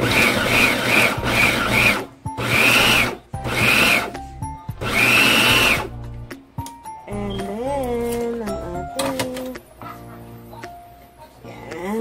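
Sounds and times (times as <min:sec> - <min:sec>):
food processor motor whining: 0:00.0 - 0:06.0.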